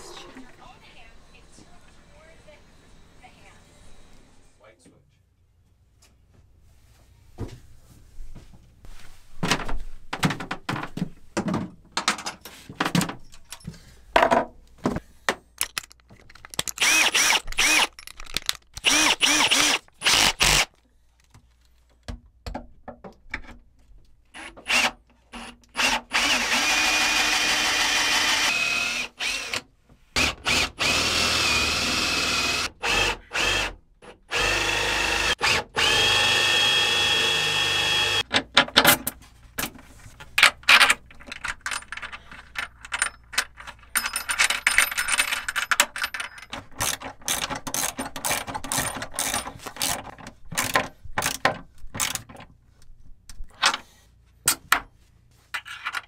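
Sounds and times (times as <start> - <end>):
power drill whining: 16.8 - 18.0, 18.8 - 20.7, 24.4 - 29.6, 30.2 - 38.2.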